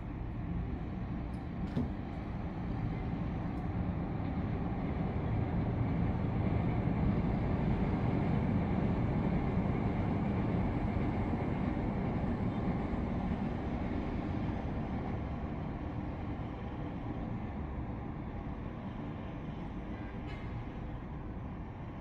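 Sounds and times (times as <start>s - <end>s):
distant city traffic rumble: 0.0s - 22.0s.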